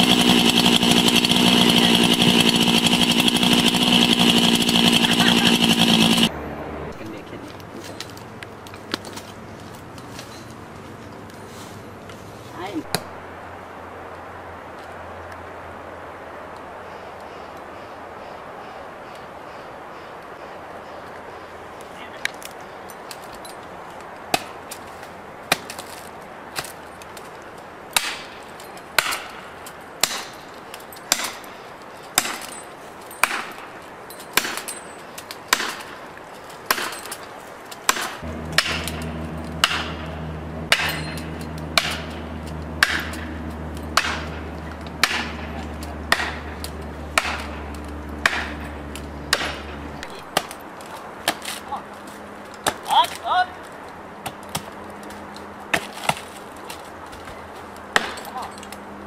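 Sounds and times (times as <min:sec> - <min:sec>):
low engine hum: 0:00.0 - 0:15.9, 0:38.2 - 0:52.7
hammer striking a wedge: 0:37.9 - 0:40.0, 0:40.7 - 0:42.2, 0:42.8 - 0:45.5, 0:46.1 - 0:46.6, 0:47.2 - 0:47.6, 0:48.2 - 0:48.6.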